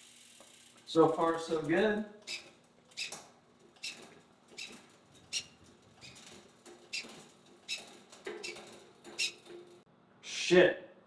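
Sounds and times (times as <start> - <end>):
bicycle derailleur clicks: 0.0 - 3.1.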